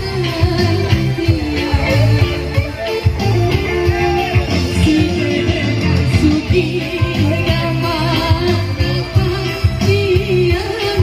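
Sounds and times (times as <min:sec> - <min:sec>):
band music over sound system: 0:00.0 - 0:11.0.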